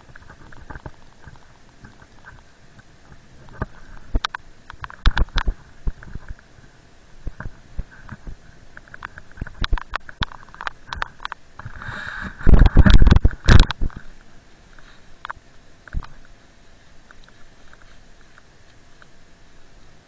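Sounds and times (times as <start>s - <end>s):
rumbling scrape over snow: 11.6s - 15.1s
hiss of snow: 11.7s - 12.8s.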